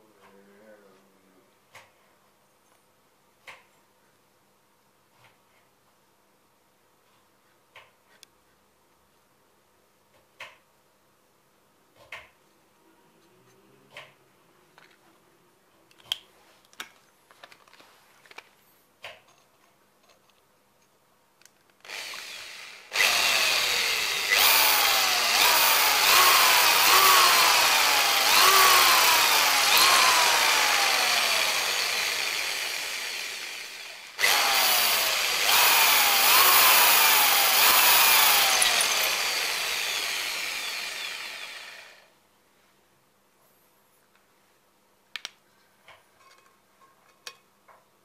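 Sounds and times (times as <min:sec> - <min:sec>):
electric drill into terracotta: 0:21.8 - 0:42.1.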